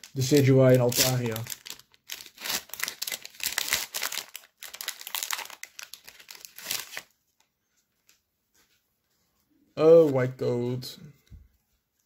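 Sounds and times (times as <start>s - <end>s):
foil wrapper crinkling: 0.0s - 7.1s.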